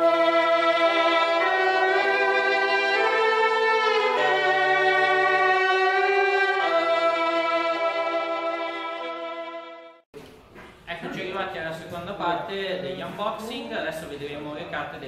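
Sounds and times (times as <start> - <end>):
sustained string chords: 0.0 - 10.0.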